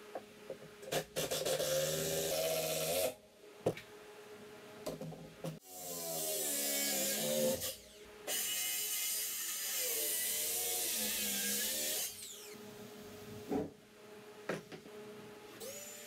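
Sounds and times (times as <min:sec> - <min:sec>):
power tool cutting wood: 0:05.6 - 0:12.6, 0:15.6 - 0:16.0.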